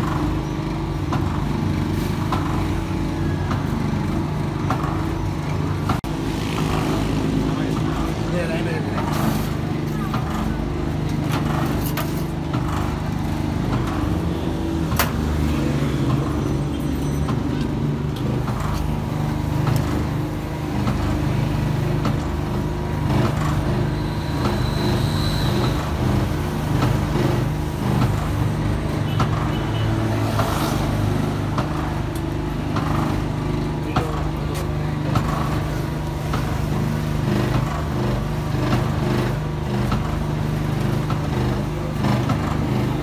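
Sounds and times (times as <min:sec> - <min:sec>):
street traffic: 0:00.0 - 0:43.0.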